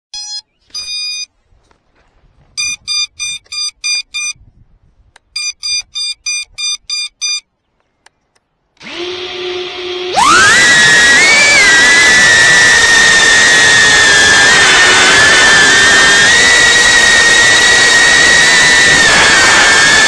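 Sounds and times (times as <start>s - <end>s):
drone beeping: 0.1s - 1.3s, 2.6s - 4.4s, 5.4s - 7.5s.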